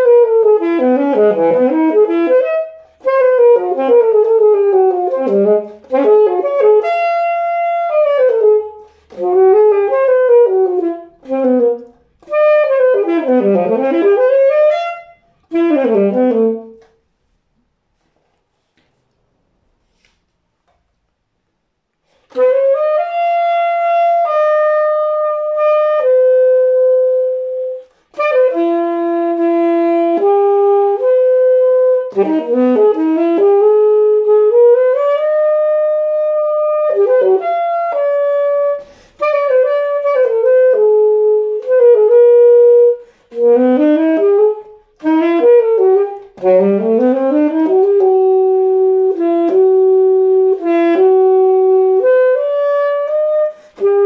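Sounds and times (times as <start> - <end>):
solo saxophone melody: 0.0 - 17.3, 21.9 - 54.0.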